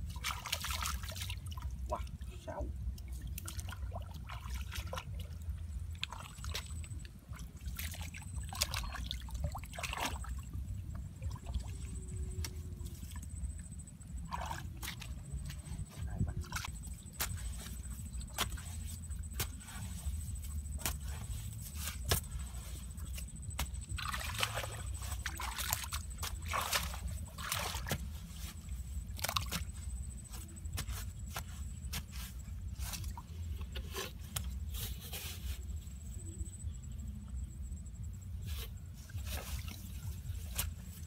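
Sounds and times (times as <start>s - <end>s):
wet mud sloshing: 0.0s - 2.2s, 3.0s - 13.4s, 14.2s - 35.6s
stick knocking and scraping in mud: 16.6s - 35.4s.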